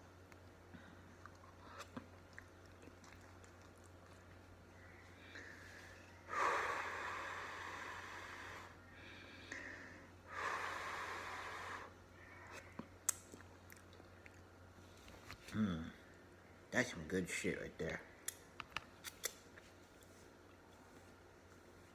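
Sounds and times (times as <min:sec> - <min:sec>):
soft chewing clicks: 0:00.0 - 0:05.9, 0:12.6 - 0:16.3, 0:18.2 - 0:21.9
person breathing out hard: 0:05.3 - 0:11.9.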